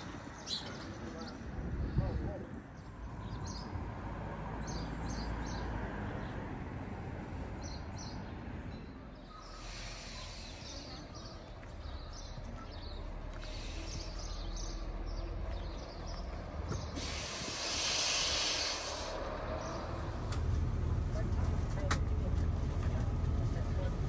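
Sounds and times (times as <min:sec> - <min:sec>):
small birds chirping: 0:00.2 - 0:01.6, 0:02.5 - 0:03.9, 0:04.6 - 0:06.5, 0:07.4 - 0:20.5
low outdoor rumble: 0:18.4 - 0:24.0.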